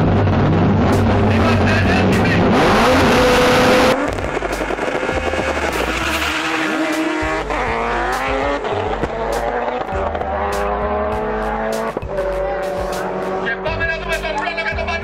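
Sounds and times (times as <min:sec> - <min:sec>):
cars accelerating away: 0:00.0 - 0:14.9
background music with steady beat: 0:03.9 - 0:15.0.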